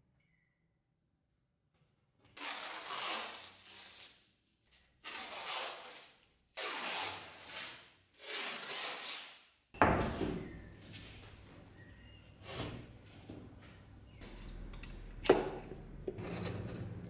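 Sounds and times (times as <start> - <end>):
tape tearing off roll: 2.4 - 4.2, 5.0 - 9.4.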